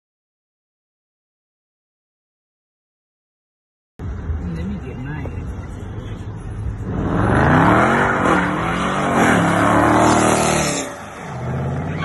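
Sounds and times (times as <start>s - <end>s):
car engine revving hard: 6.8s - 11.9s.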